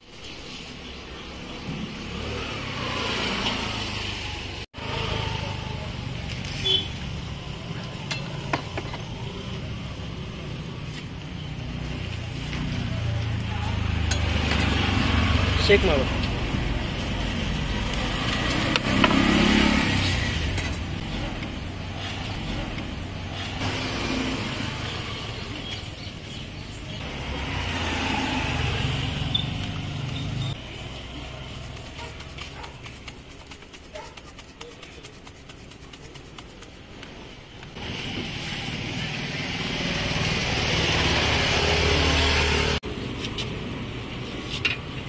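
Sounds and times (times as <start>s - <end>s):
street noise: 0.0s - 45.0s
vehicle engine rumbling: 0.2s - 45.0s.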